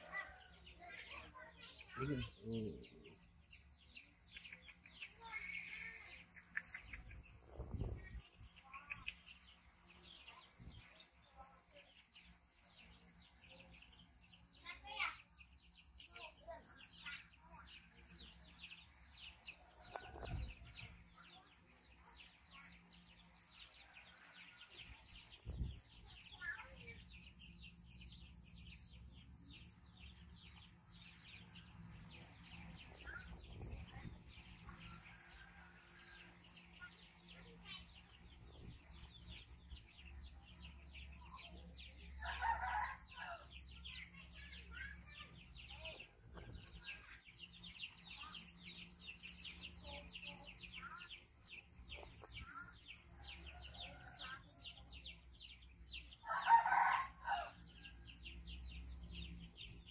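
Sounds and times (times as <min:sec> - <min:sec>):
birds chirping rapidly: 0:00.0 - 0:59.9
chickens clucking: 0:04.3 - 0:09.4, 0:51.6 - 0:54.4
rooster crowing: 0:56.2 - 0:57.5.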